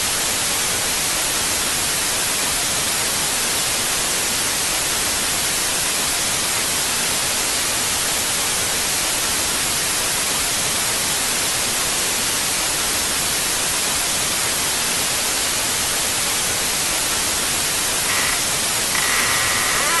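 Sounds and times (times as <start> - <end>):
loud static hiss: 0.0 - 20.0
short high-pitched tones: 18.1 - 20.0.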